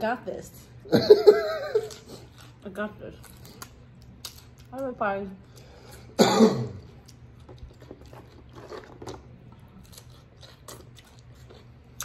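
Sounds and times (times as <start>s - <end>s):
chewing: 1.8s - 4.8s, 6.8s - 12.0s.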